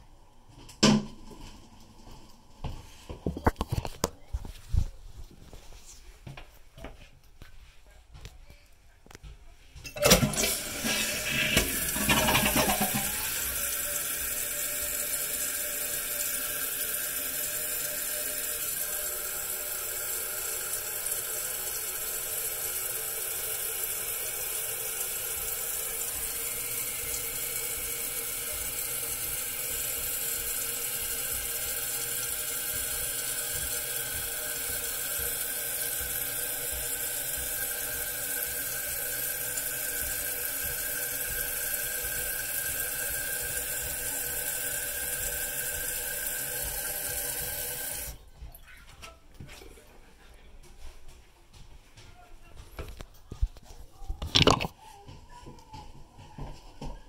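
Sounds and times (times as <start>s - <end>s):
toilet tank refilling: 9.9s - 48.2s.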